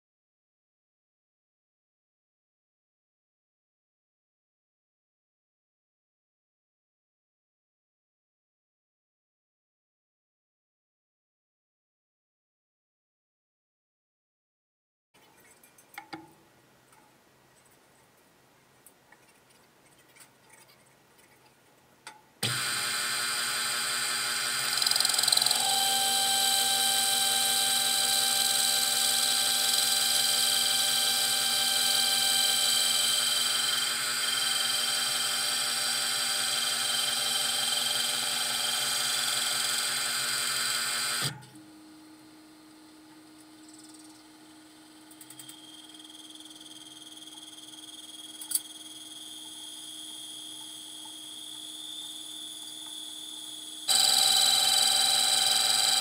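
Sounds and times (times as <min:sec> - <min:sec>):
metal lathe whine: 0:22.4 - 0:41.3, 0:45.2 - 0:56.0.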